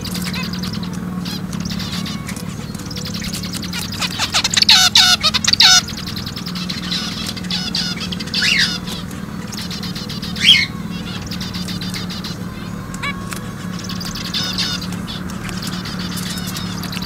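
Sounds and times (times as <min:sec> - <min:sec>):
finches chirping: 0:00.0 - 0:17.0.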